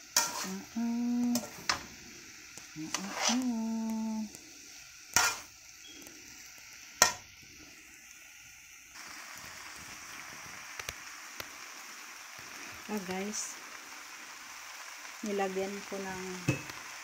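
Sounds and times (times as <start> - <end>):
noodles sizzling in a wok: 0.0 - 17.0
tongs clanking against wok: 0.2 - 0.6.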